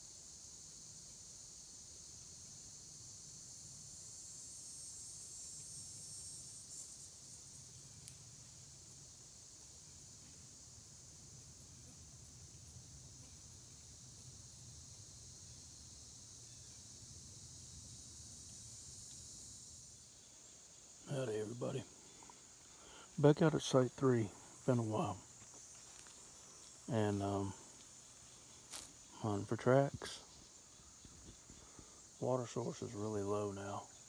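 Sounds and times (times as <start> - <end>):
insect chorus drone: 0.0 - 34.0.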